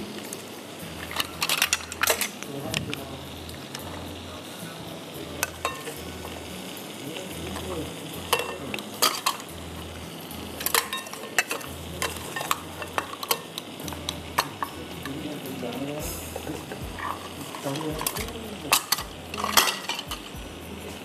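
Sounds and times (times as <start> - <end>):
butter sizzling in a pan: 0.0 - 21.0
utensil clicking against pan: 7.4 - 9.5, 10.6 - 20.4.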